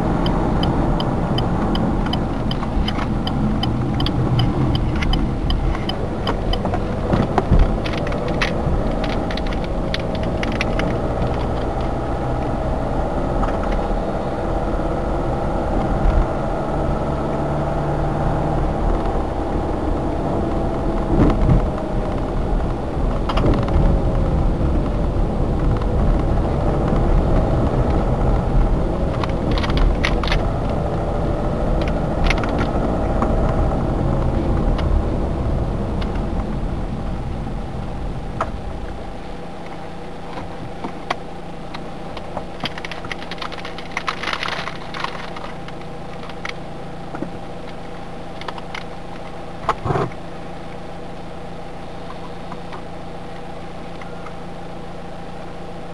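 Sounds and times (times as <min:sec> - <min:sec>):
car engine and road noise: 0:00.0 - 0:55.9
car engine idling: 0:00.0 - 0:55.9
sharp clicks or rattles: 0:00.2 - 0:12.0, 0:41.0 - 0:46.6.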